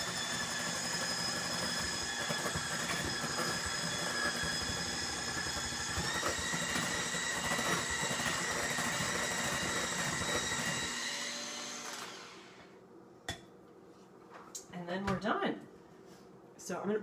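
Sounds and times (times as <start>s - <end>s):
electric hand mixer whining: 0.0s - 12.7s.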